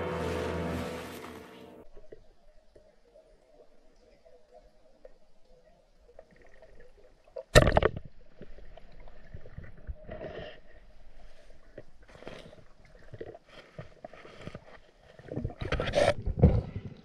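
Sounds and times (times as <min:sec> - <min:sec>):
water bubbling and gurgling: 0:01.8 - 0:17.0
underwater knocks and scrapes: 0:06.2 - 0:17.0.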